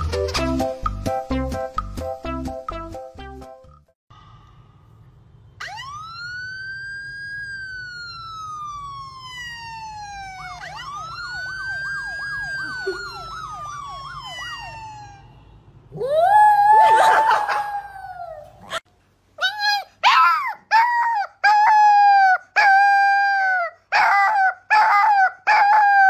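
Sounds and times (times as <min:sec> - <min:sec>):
emergency siren wailing: 0:05.6 - 0:18.2.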